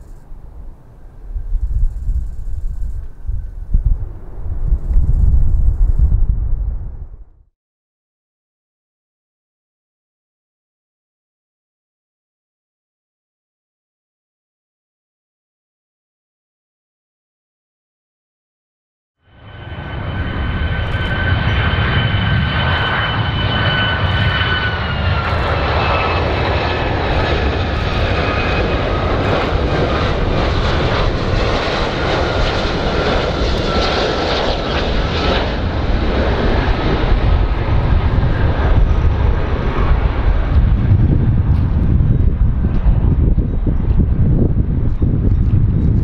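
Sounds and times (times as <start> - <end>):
jet engine rumble: 0.0 - 7.5, 19.3 - 46.0
high engine whine: 19.3 - 46.0.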